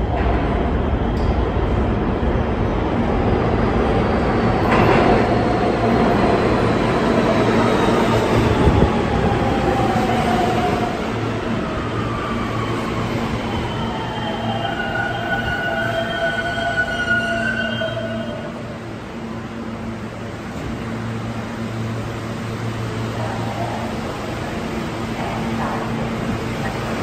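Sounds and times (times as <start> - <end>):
steel wheels rumbling on rail: 0.0 - 27.0
train braking: 11.8 - 18.8.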